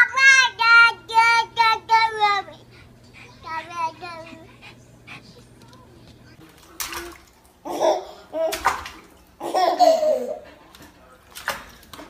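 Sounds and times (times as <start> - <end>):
water splashing: 6.4 - 12.0.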